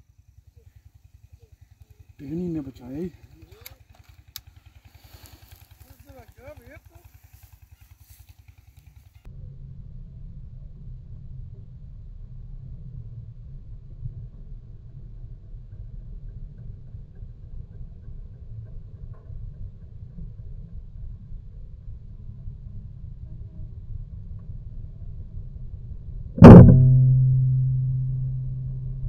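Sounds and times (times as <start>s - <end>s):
low rumble: 0.0s - 29.0s
loud ringing hit: 26.4s - 29.0s.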